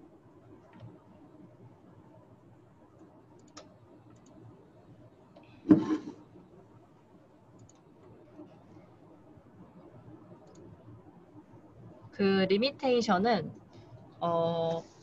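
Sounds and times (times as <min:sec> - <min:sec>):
faint clicks: 0:03.0 - 0:04.4, 0:07.6 - 0:08.2, 0:10.4 - 0:10.7.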